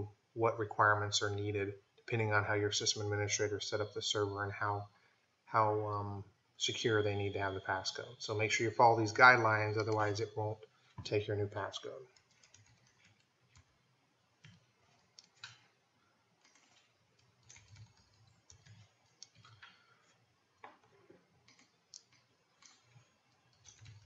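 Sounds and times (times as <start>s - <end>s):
computer keyboard typing: 12.1s - 13.7s, 14.4s - 15.7s, 16.4s - 19.8s, 21.4s - 24.0s.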